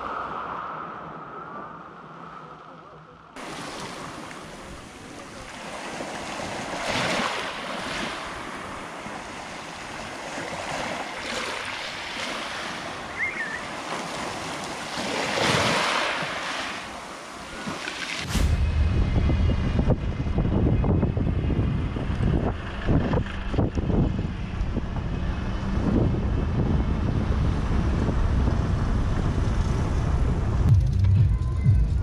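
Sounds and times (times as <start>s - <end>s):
surf washing onto beach: 3.4s - 20.8s
wind buffeting microphone: 18.2s - 30.8s.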